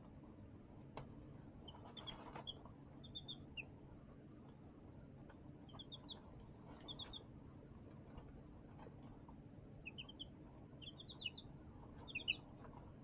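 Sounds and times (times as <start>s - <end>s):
baby chicks peeping: 0.9s - 13.0s
soft scratchy rustles: 6.4s - 7.1s.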